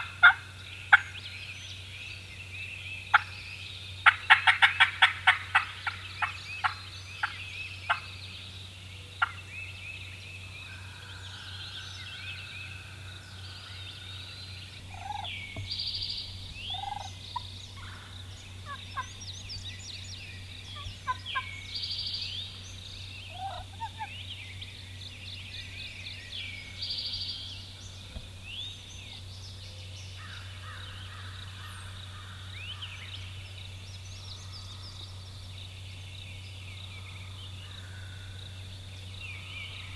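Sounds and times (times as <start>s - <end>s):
wild turkeys calling: 0.0s - 1.2s, 3.1s - 3.3s, 4.0s - 8.1s, 9.2s - 9.4s, 12.6s - 24.7s
songbirds singing: 0.0s - 39.9s
low steady hum: 5.2s - 39.9s.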